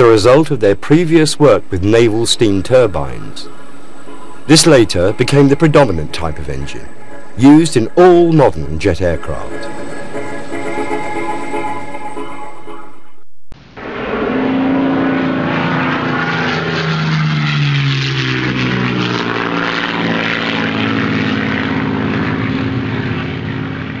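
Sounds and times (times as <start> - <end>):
aircraft flying past: 0.0 - 12.7, 13.8 - 24.0.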